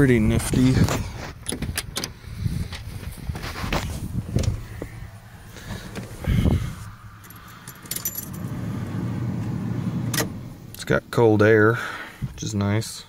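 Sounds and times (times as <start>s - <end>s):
diesel engine idling: 4.5s - 10.8s
keys jangling: 7.2s - 8.5s.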